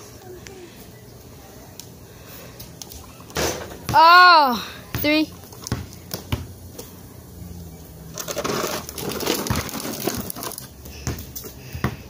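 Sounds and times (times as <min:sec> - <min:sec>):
basketball bouncing on concrete: 0:03.4 - 0:04.3, 0:04.9 - 0:06.6, 0:09.4 - 0:10.3, 0:11.0 - 0:12.0.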